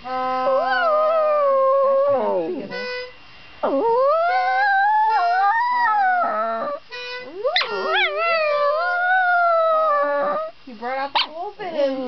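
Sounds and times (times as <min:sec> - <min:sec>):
dog howling: 0:00.0 - 0:02.8, 0:03.6 - 0:10.5
harmonica notes: 0:00.0 - 0:10.6.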